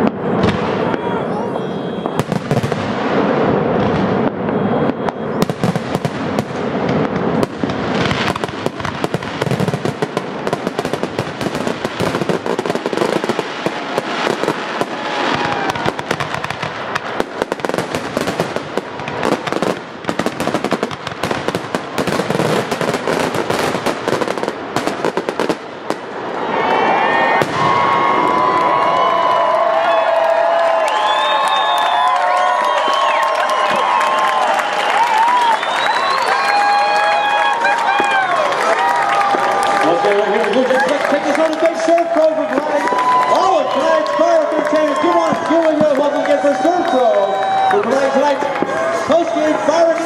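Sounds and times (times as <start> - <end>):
fireworks bursting and crackling: 0.0 - 26.6, 27.2 - 50.0.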